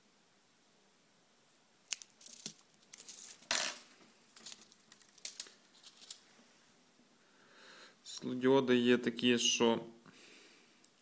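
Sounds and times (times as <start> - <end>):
cover tape peeling: 1.9 - 3.5, 4.4 - 6.2
small sharp clicks and crinkles: 1.9 - 3.8, 4.4 - 6.2.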